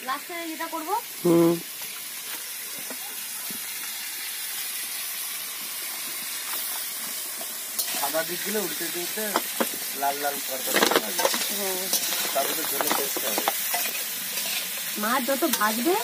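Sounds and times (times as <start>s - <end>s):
vegetables sizzling in oil: 0.0s - 16.0s
voices: 8.0s - 13.6s, 14.9s - 16.0s
metal spatula scraping pan: 10.6s - 15.9s.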